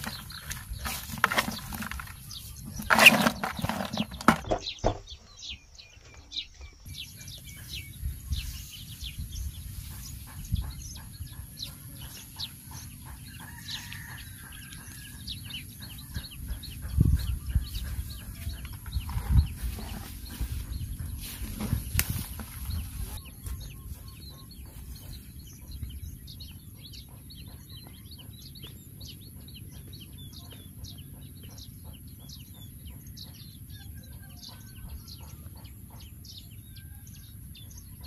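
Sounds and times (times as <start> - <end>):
net rustling over grass: 0.0 - 4.4, 19.0 - 23.2
fish flapping in plastic bucket: 0.0 - 4.6.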